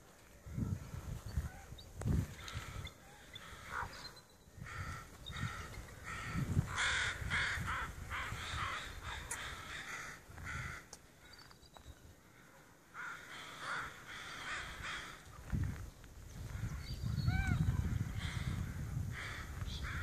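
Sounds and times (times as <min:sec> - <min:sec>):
wind rumbling on microphone: 0:00.0 - 0:10.9, 0:13.8 - 0:20.0
crows cawing: 0:02.4 - 0:04.0, 0:04.6 - 0:11.0, 0:12.2 - 0:15.4, 0:17.4 - 0:20.0.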